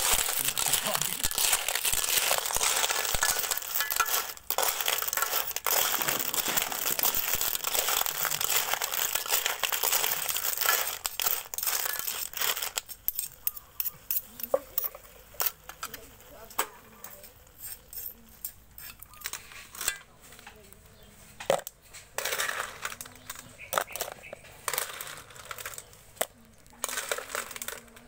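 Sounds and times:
shells clattering in a pan: 0:00.0 - 0:20.5, 0:21.4 - 0:28.0
cockles sizzling in a wok: 0:00.0 - 0:28.0.

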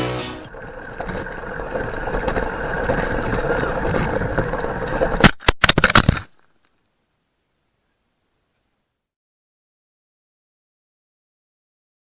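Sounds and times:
rc truck wheels and motor rumble: 0:00.0 - 0:06.8.

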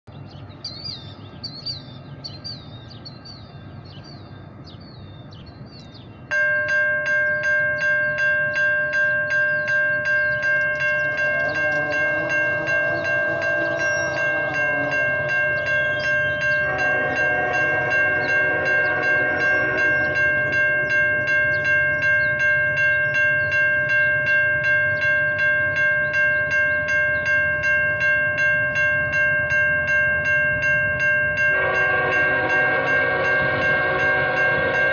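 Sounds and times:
birds chirping: 0:00.0 - 0:28.1
crossing warning bell ringing: 0:00.5 - 0:34.9
locomotive horn blasts: 0:10.3 - 0:22.4, 0:31.4 - 0:34.9.

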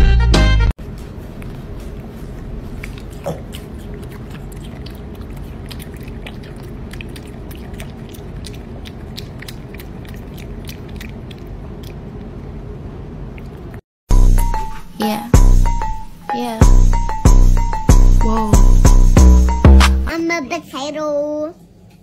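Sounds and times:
piglet chewing with wet smacking: 0:00.9 - 0:13.8.

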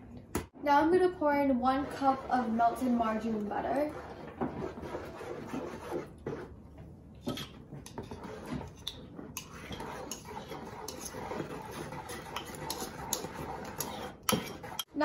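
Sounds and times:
wooden spoon stirring plastic bowl: 0:01.0 - 0:15.0
spoon scraping small bowl: 0:07.3 - 0:14.9.

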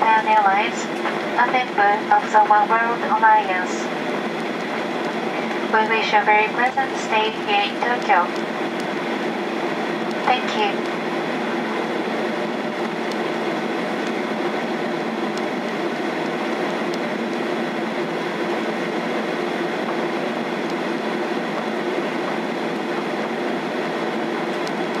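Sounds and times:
airplane cabin engine hum: 0:00.0 - 0:25.0.

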